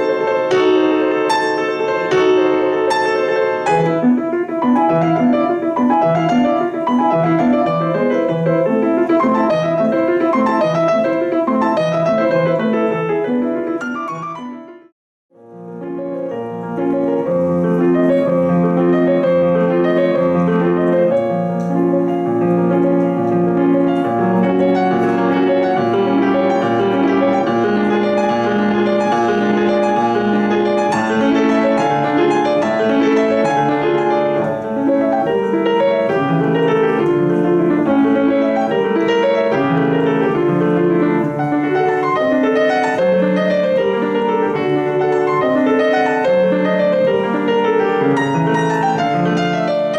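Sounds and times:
solo grand piano: 0:00.0 - 0:49.9.

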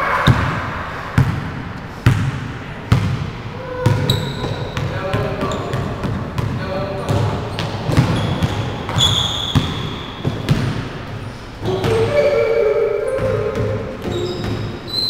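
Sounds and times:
basketball bouncing on wooden floor: 0:02.1 - 0:10.8, 0:13.2 - 0:15.0
sneaker squeaks: 0:03.6 - 0:15.0
person shouting: 0:11.6 - 0:13.9.

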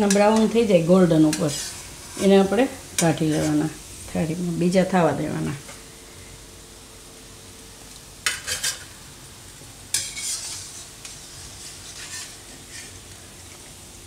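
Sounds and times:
metal utensil scraping pan: 0:00.0 - 0:03.7, 0:08.2 - 0:08.9, 0:09.9 - 0:13.0
food deep-frying in hot oil: 0:00.0 - 0:14.0.

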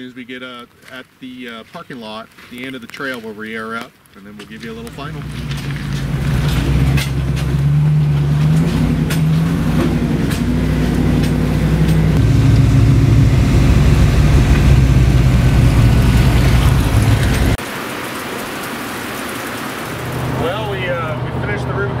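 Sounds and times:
truck engine driving: 0:04.2 - 0:17.6, 0:19.8 - 0:22.0.

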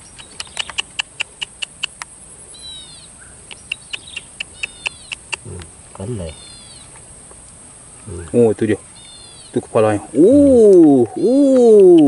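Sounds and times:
bird calling with sharp high notes: 0:02.6 - 0:05.5, 0:06.2 - 0:07.0.

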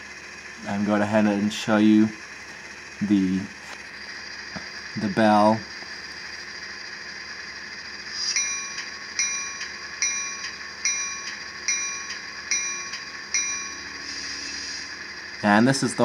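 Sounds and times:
model diesel engine idling: 0:00.0 - 0:16.0
locomotive bell ringing: 0:08.2 - 0:15.9.

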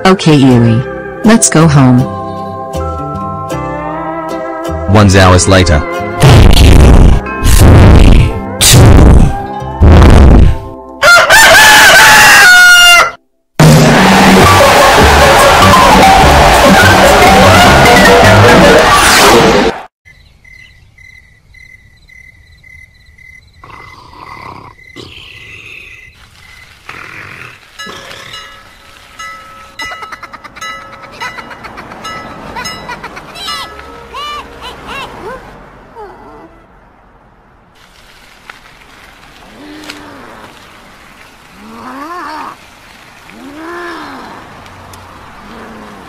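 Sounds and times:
background music: 0:00.0 - 0:11.0, 0:13.6 - 0:19.8
crickets chirping: 0:20.1 - 0:29.0
cartoon voice groaning in pain: 0:43.4 - 0:44.5.

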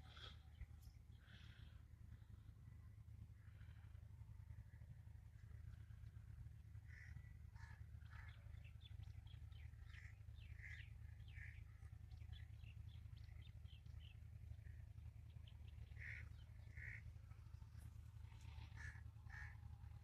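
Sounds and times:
birds calling: 0:00.0 - 0:20.0
steady low hum: 0:00.0 - 0:20.0
harsh caws: 0:06.8 - 0:08.4, 0:16.0 - 0:17.1, 0:18.4 - 0:19.6.

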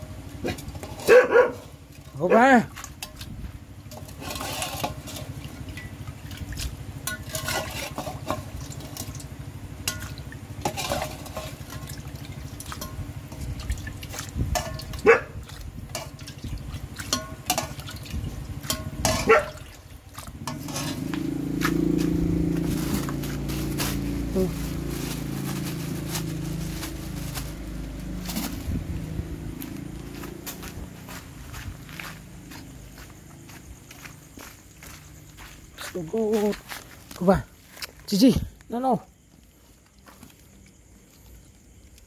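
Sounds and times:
soup liquid splashing: 0:00.2 - 0:28.4
metal ladle clinking on pot: 0:07.0 - 0:09.2, 0:09.8 - 0:13.4, 0:14.5 - 0:15.0, 0:15.9 - 0:16.4, 0:17.0 - 0:19.7, 0:20.4 - 0:21.1.

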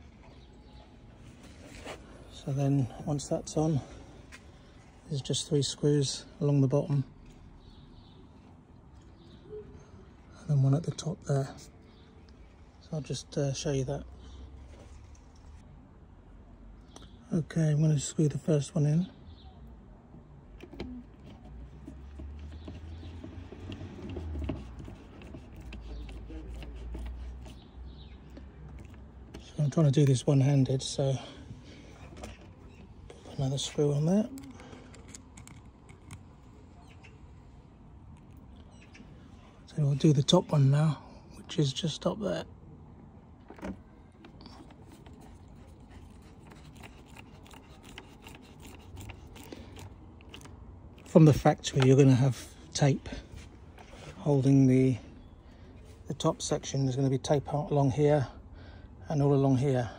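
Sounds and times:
screw clicks and taps: 0:34.4 - 0:36.2.

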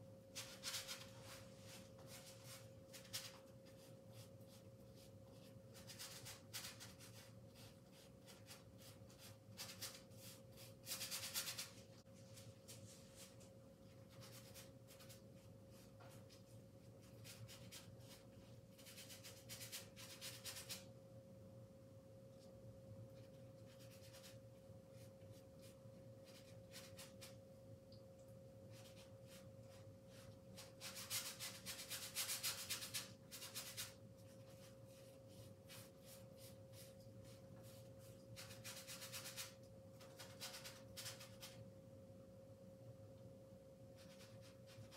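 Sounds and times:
faint steady hum: 0:00.0 - 0:44.9
paintbrush scrubbing on canvas: 0:00.2 - 0:20.9, 0:28.7 - 0:41.6.

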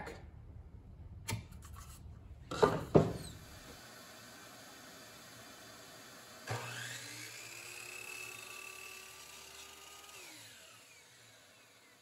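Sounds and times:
miter saw motor whining: 0:03.2 - 0:12.0.

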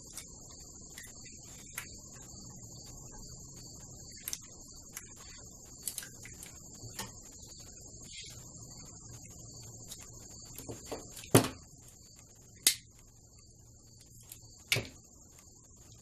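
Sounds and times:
high-pitched whine: 0:00.0 - 0:16.0
tape snapping clicks: 0:12.6 - 0:12.9.

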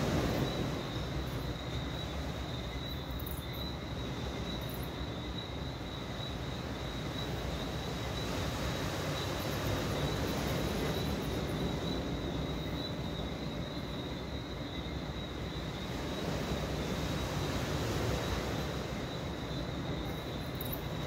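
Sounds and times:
chorus of insects: 0:00.0 - 0:21.0.

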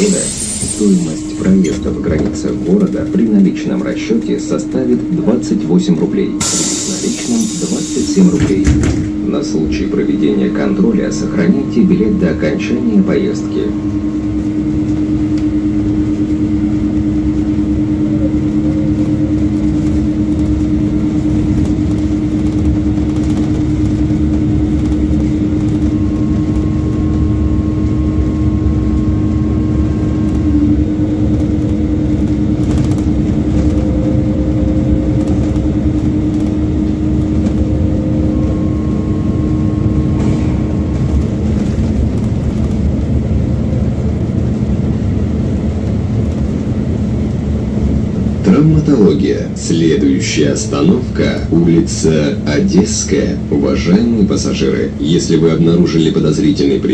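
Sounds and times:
road noise: 0:00.0 - 0:02.8
bus engine rumble: 0:00.0 - 0:56.9
constant hum: 0:00.0 - 0:56.9.

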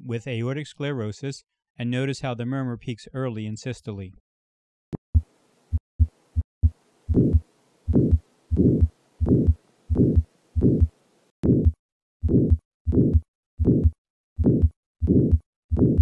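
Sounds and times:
heartbeat with murmur: 0:07.1 - 0:16.0.

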